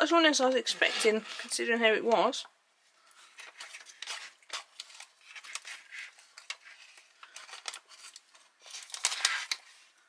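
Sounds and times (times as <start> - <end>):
metal spoon scraping: 0.6 - 1.7
foil pouch crinkling: 3.3 - 10.0.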